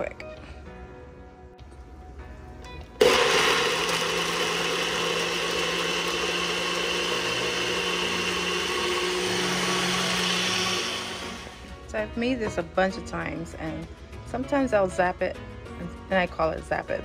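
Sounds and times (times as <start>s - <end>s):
blender motor running: 3.0s - 11.7s.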